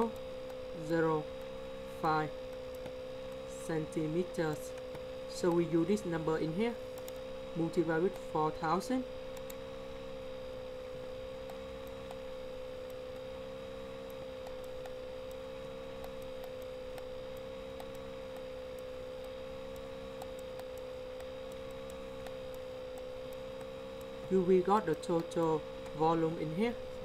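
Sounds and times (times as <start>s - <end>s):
faint ticks: 0.0s - 1.6s, 2.4s - 3.6s, 6.9s - 7.3s, 9.3s - 9.7s, 11.4s - 27.0s
steady electrical hum: 0.0s - 27.0s.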